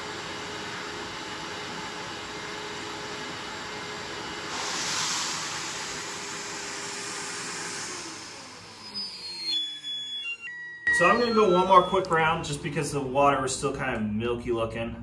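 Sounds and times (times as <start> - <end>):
shop vacuum running: 0.0 - 14.2
suction hiss: 4.5 - 9.0.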